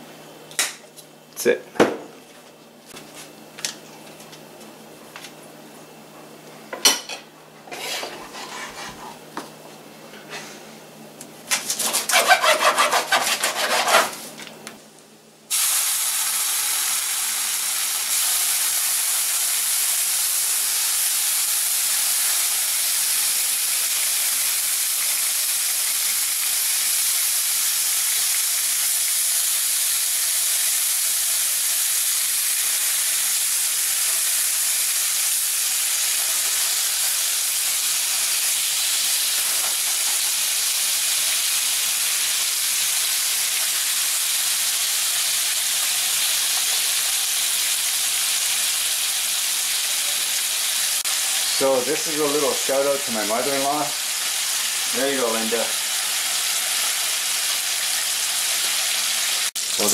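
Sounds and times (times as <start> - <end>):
bacon sizzling in frying pan: 15.5 - 59.9.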